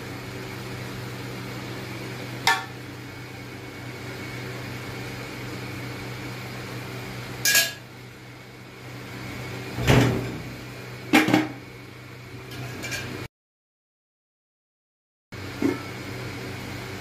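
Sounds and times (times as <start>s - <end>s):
metal lid clanking on pot: 2.5s - 2.8s, 7.5s - 7.8s.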